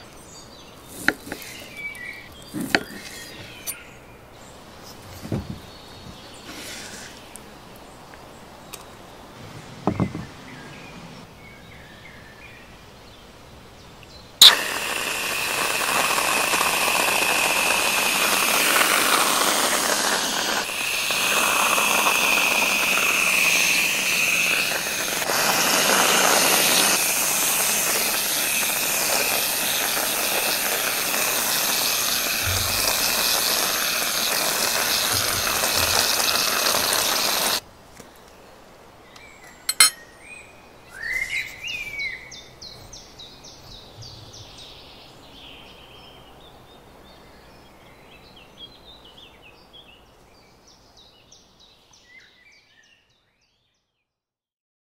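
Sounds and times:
whipped cream dispenser spraying: 0:14.4 - 0:37.6.

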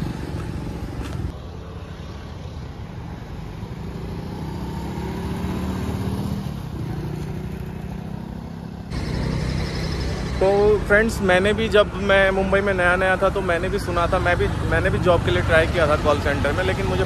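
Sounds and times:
motorcycle passing by: 0:00.0 - 0:10.8
road traffic: 0:00.0 - 0:17.0.

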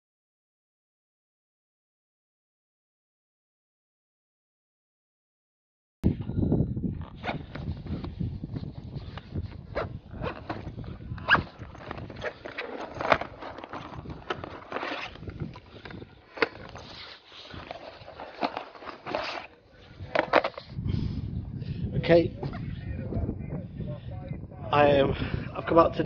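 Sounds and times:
buckles clicking and knocking: 0:09.1 - 0:20.7
fabric rustling: 0:09.6 - 0:19.5.

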